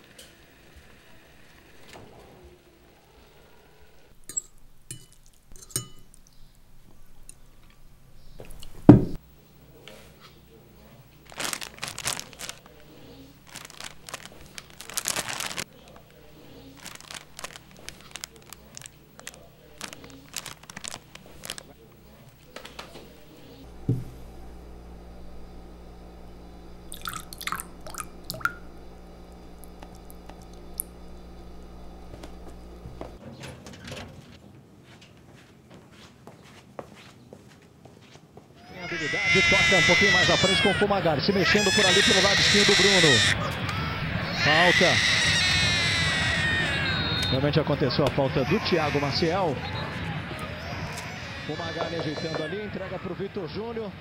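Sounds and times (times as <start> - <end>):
tableware clinking: 4.2 - 6.2
low hum: 23.1 - 33.2
heavy thud: 23.8 - 24.2
liquid dripping into a cup: 26.9 - 28.6.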